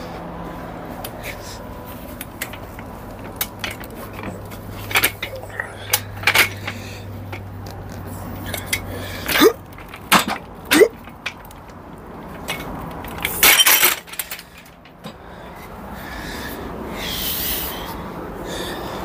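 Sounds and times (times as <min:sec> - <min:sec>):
metal hand truck clanking: 0:01.2 - 0:15.7.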